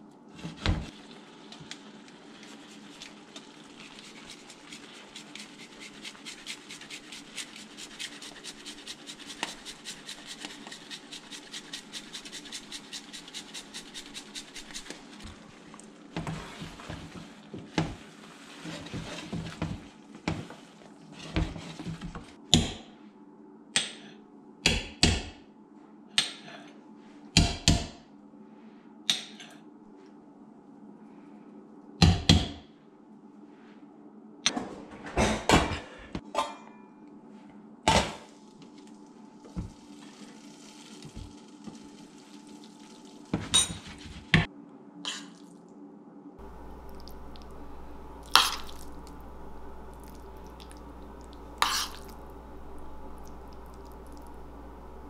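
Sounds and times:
wooden spoon scraping a pan: 2.3s - 22.4s, 43.3s - 44.5s, 46.4s - 55.0s
steady low hum: 45.7s - 55.0s.

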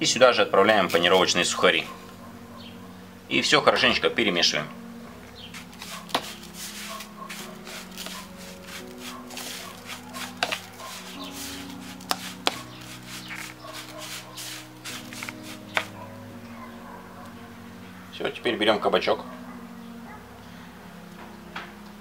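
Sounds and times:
fork scraping crumbs in bowl: 5.6s - 16.0s.

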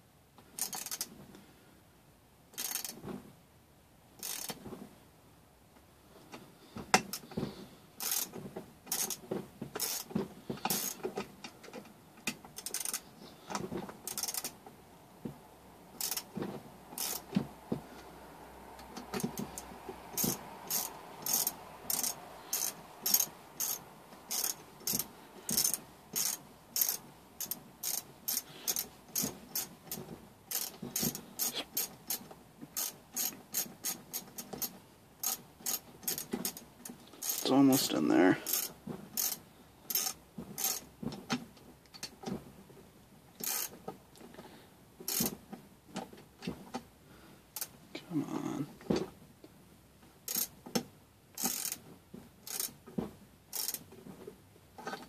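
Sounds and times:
hand ratchet clicking: 0.6s - 1.1s, 2.6s - 3.0s, 4.2s - 4.6s, 8.0s - 9.2s, 9.8s - 14.6s, 16.0s - 16.3s, 17.0s - 17.4s, 18.8s - 42.1s, 43.4s - 43.8s, 45.1s - 45.4s, 47.6s - 47.8s, 50.3s - 50.8s, 51.4s - 51.8s, 52.4s - 52.8s, 53.5s - 53.8s.

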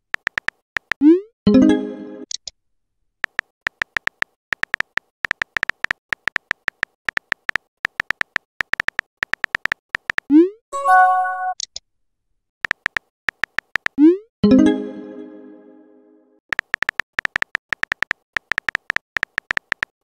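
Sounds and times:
keyboard typing clicks: 0.2s - 1.1s, 3.2s - 10.4s, 12.6s - 14.1s, 16.5s - 19.9s
message tone: 10.8s - 11.6s.

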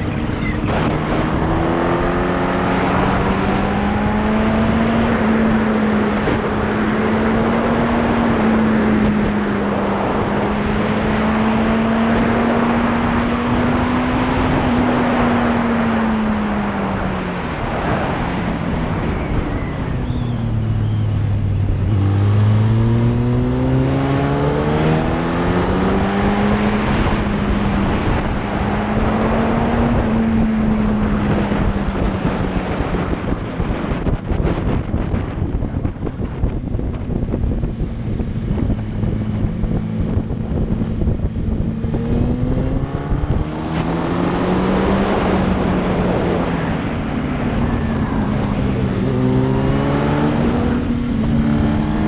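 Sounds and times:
motorcycle engine revving: 0.0s - 52.0s
wind noise: 0.0s - 52.0s.

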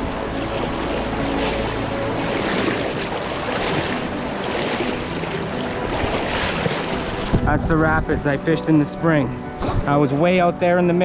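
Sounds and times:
river rapids rushing: 0.0s - 7.5s
water splashing around legs: 0.0s - 8.0s.

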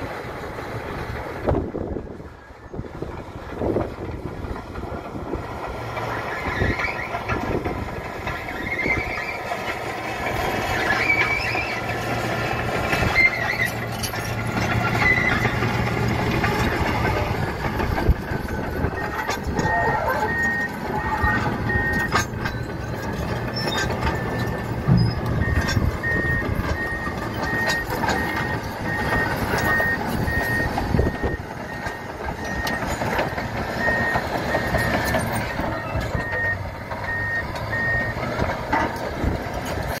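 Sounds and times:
bulldozer diesel engine: 0.0s - 40.0s
tracks squealing: 5.8s - 39.0s
reversing alarm beeps: 18.9s - 33.0s, 33.7s - 38.3s.

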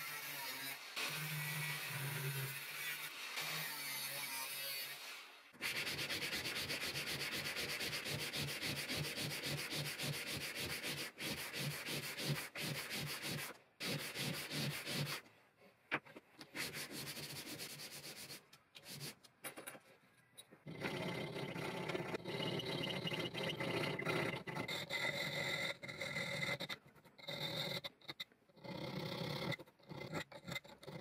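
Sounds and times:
brass rubbed on sandpaper: 5.6s - 15.2s, 16.6s - 19.2s.

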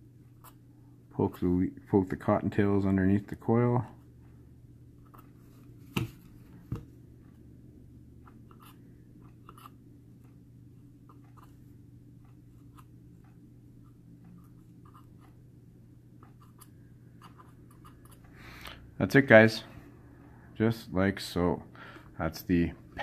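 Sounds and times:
steady low hum: 0.0s - 23.0s
tweezers scratching and clicking: 8.3s - 9.8s, 16.2s - 18.3s.

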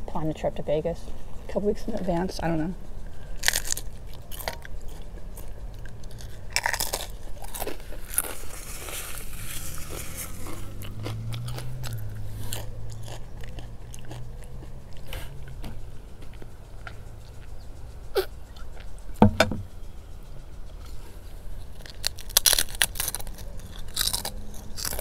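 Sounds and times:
rumble of passing cars: 0.0s - 25.0s
crunching potato chips: 3.3s - 15.6s, 21.6s - 25.0s.

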